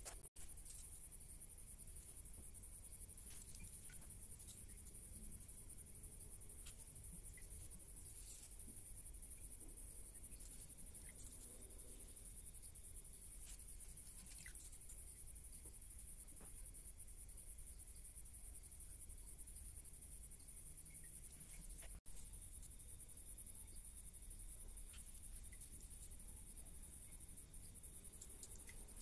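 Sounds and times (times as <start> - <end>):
insects chirring: 0.0 - 29.0
soft ticks: 27.0 - 29.0.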